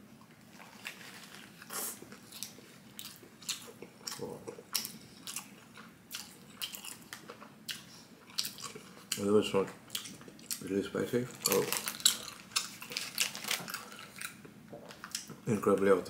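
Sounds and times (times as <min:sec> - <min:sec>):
paper wrapper crinkling: 0:00.5 - 0:01.7, 0:11.4 - 0:14.2
crunchy biting and chewing: 0:11.4 - 0:14.4.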